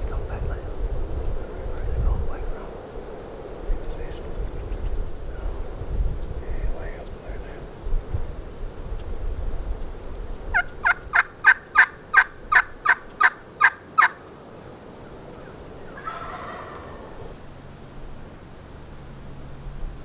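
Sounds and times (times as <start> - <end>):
turkey yelping: 10.5 - 14.2, 15.3 - 17.4
rough turkey call: 10.5 - 14.3, 15.0 - 17.4.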